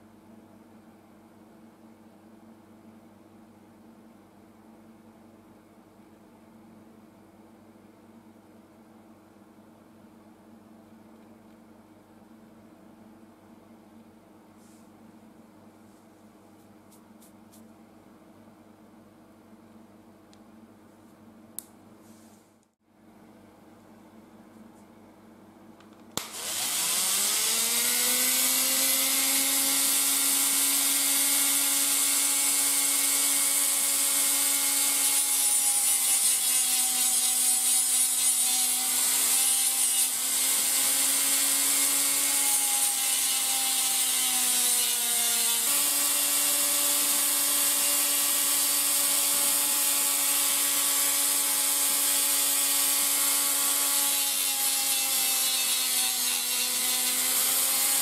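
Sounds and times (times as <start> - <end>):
rotary sanding tool whining: 26.2 - 58.0.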